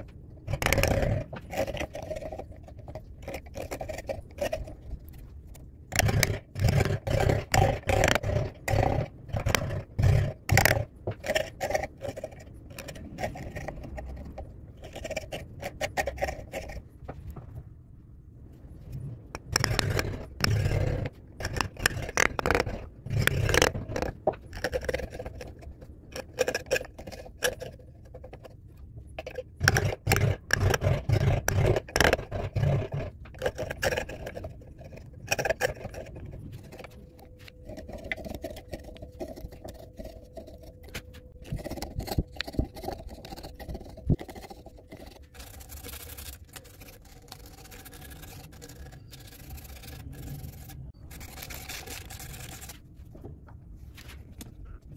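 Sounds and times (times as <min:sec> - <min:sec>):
faint steady hum: 0:00.0 - 0:54.9
gouge scraping wood: 0:19.4 - 0:28.4, 0:29.3 - 0:52.8.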